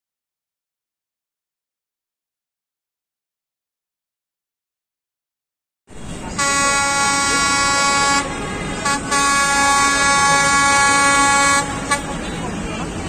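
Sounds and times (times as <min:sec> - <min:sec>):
locomotive air horn: 0:05.9 - 0:12.4.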